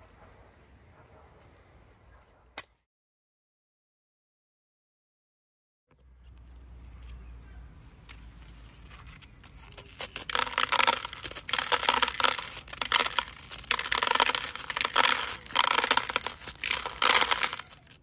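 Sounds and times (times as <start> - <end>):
crackling and rustling: 6.0 - 18.0.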